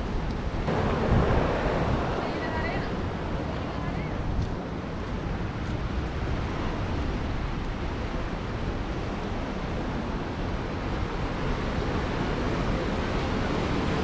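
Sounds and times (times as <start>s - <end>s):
surf breaking on rocky shore: 0.0s - 14.0s
wind buffeting microphone: 0.0s - 14.0s.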